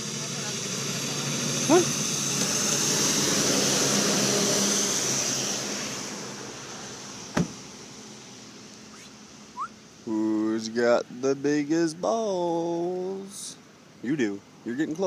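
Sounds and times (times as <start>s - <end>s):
vehicle passing by: 0.0s - 8.0s.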